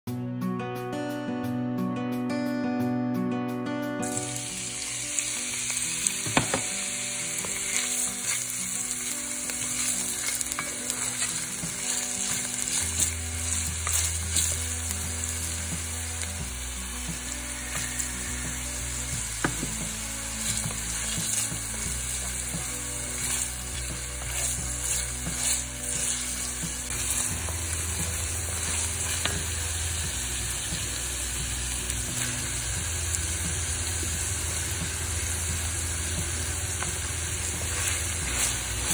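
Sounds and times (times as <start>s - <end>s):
onion sizzling in a pan: 4.0s - 38.9s
wooden spoon scraping a pan: 7.3s - 15.9s, 17.1s - 29.7s, 36.8s - 38.9s.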